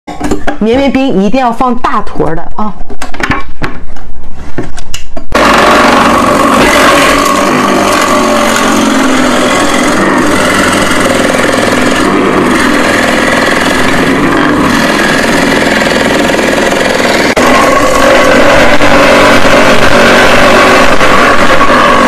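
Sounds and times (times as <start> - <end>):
shaved-ice machine motor running: 5.4 - 22.0.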